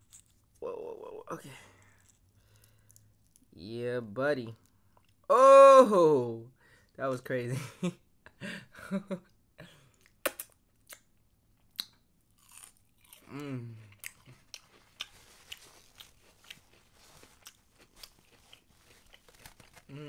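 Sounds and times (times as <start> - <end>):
crunchy chewing of fried food: 1.6 - 3.5, 11.7 - 20.0.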